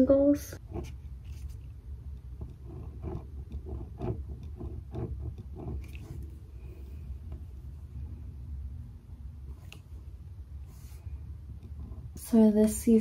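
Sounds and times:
low room hum: 0.0s - 13.0s
pen scratching on paper: 0.6s - 7.4s, 10.6s - 12.2s.

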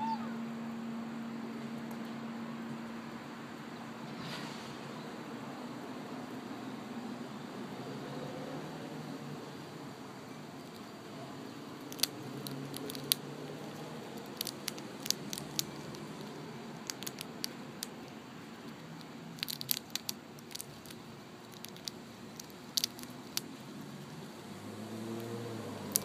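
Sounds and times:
chipmunk cracking peanut shell: 10.6s - 10.9s, 11.7s - 24.1s, 25.0s - 26.0s.

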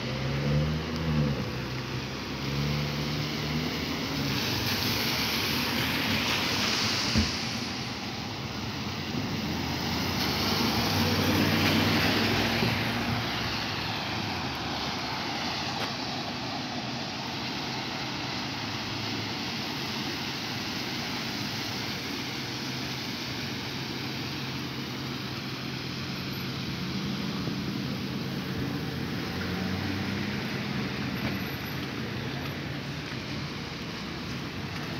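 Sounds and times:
cars passing with tyre spray: 0.0s - 34.9s
tyres hissing on wet pavement: 0.0s - 34.9s
truck engine: 24.2s - 34.9s.

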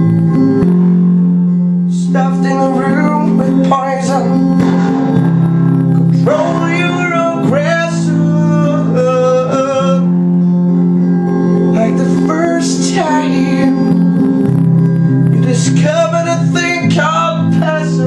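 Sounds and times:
guitar chords: 0.0s - 18.0s
man singing: 1.8s - 4.9s, 6.1s - 10.3s, 11.7s - 14.2s, 15.4s - 18.0s.

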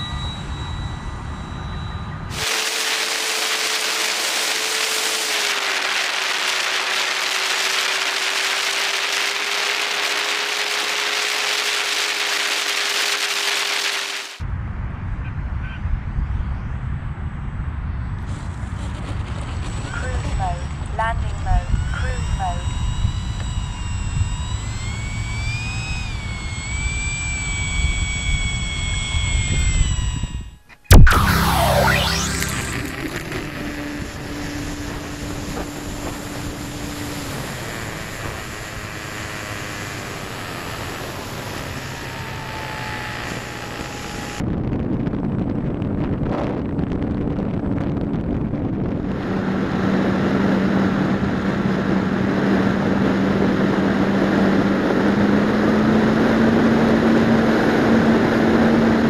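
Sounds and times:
model plane motor whining: 0.0s - 14.4s, 18.8s - 44.5s, 48.3s - 59.0s
wind rushing over camera: 11.6s - 59.0s
wind rush on camera: 41.9s - 59.0s.

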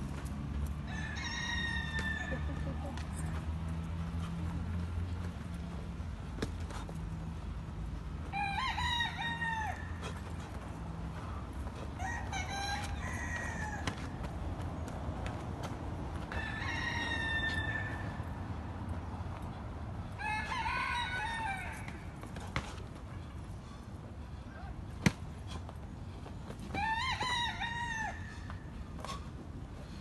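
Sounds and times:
roosters crowing: 0.7s - 3.3s, 8.2s - 10.4s, 11.9s - 14.4s, 16.2s - 18.6s, 20.0s - 22.3s, 26.6s - 28.8s.

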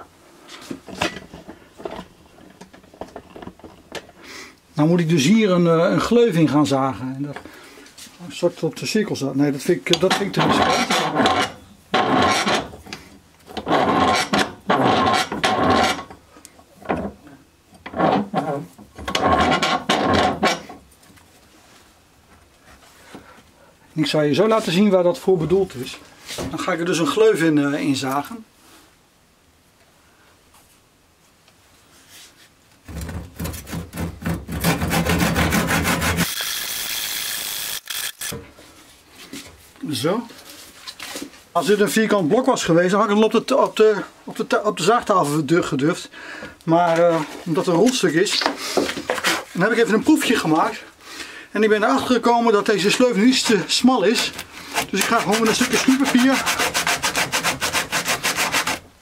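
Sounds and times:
handsaw cutting wood: 10.3s - 12.7s, 13.6s - 16.1s, 33.4s - 38.4s, 54.6s - 58.9s.

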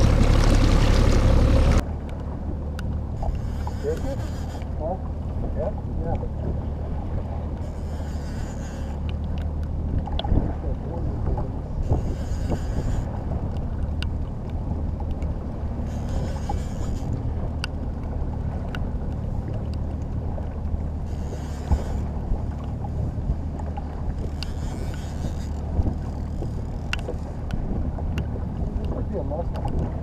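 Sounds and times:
boat engine hum: 0.0s - 30.0s
light ticks: 2.0s - 4.7s, 7.6s - 10.4s, 13.5s - 15.3s, 16.1s - 20.5s, 23.6s - 29.8s.

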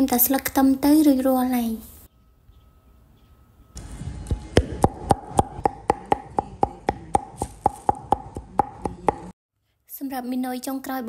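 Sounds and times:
knife chopping on cutting board: 4.6s - 9.3s.

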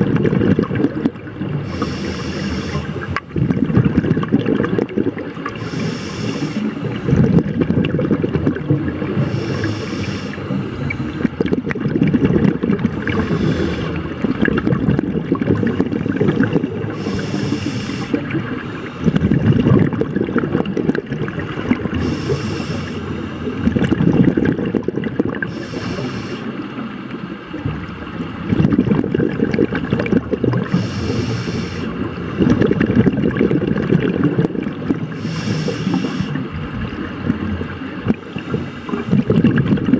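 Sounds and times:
gurgling exhaled bubbles: 0.0s - 39.9s
regulator inhale hiss: 1.6s - 3.2s, 5.6s - 7.1s, 9.2s - 11.2s, 12.9s - 14.1s, 16.9s - 19.2s, 21.9s - 23.6s, 25.5s - 26.7s, 30.7s - 32.1s, 35.1s - 36.4s.

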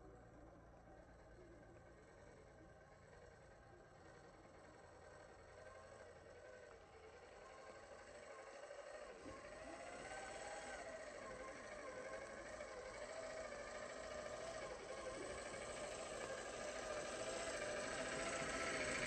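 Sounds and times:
electric motor whining: 7.8s - 19.0s.

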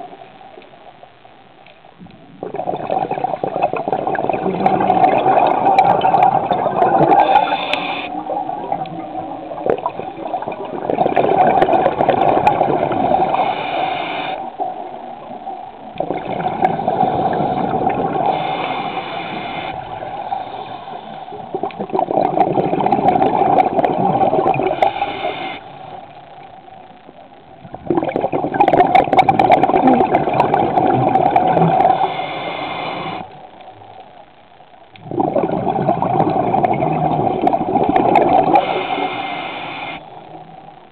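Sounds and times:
underwater water rushing and gurgling: 1.9s - 34.0s, 34.9s - 40.9s.

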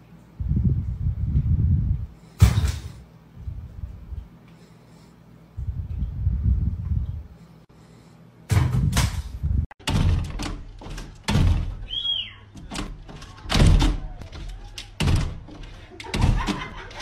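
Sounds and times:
dog paws banging glass door: 8.5s - 17.0s
door rattling in frame: 9.8s - 17.0s.

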